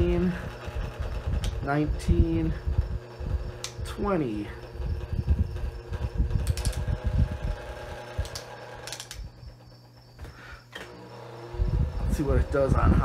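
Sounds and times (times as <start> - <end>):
fan motor humming: 0.0 - 13.0
click: 3.6 - 3.8, 8.2 - 9.2.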